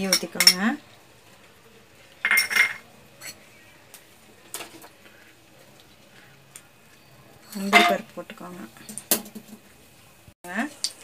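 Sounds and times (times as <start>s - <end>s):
utensils and pan clattering: 2.2s - 3.4s, 7.4s - 8.1s.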